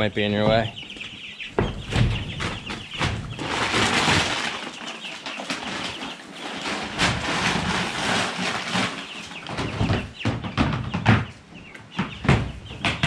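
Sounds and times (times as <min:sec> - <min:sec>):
chicks peeping: 0:00.0 - 0:13.0
wings flapping: 0:00.8 - 0:11.3
shavings rustling: 0:02.0 - 0:10.0.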